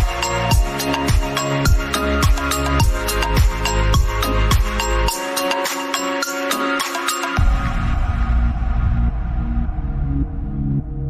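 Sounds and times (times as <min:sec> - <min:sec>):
kick drum beat: 0:00.0 - 0:04.8
electronic music: 0:00.0 - 0:11.0.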